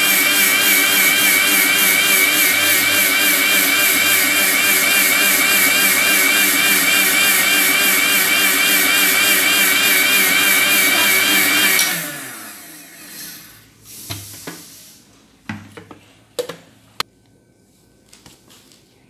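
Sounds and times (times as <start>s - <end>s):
mixer grinder running: 0.0s - 13.6s.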